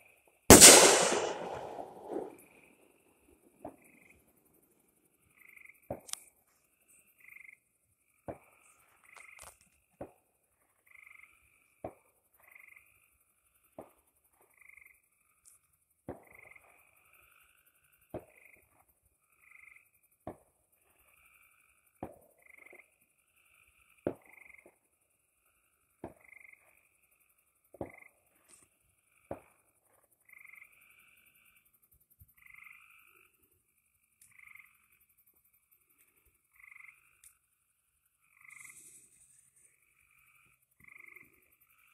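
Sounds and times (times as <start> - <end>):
sharp clicks: 0.5 - 2.3
frogs calling: 32.3 - 33.4, 36.4 - 37.4.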